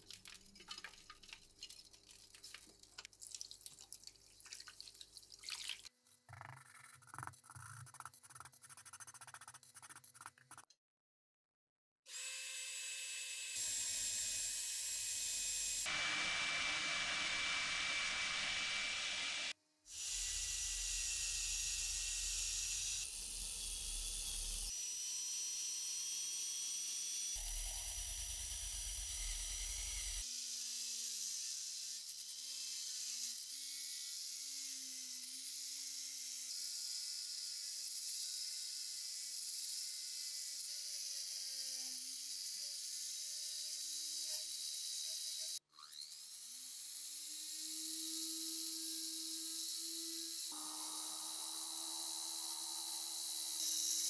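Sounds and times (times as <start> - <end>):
rotary tool whining: 44.4 - 54.0.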